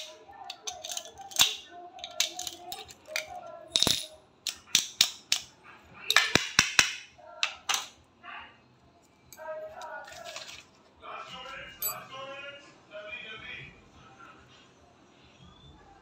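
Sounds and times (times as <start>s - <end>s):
key turning in padlock: 0.0s - 5.5s
lock and keys clinking on tile: 0.0s - 5.5s, 7.4s - 7.9s, 9.3s - 10.7s, 11.7s - 12.1s.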